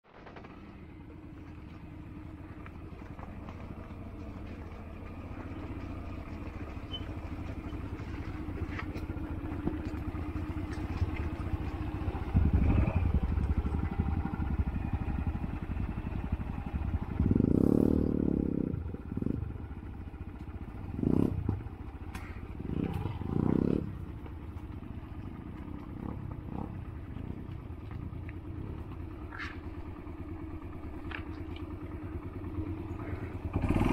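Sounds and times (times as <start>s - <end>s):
motorcycle engine running: 0.1s - 33.9s.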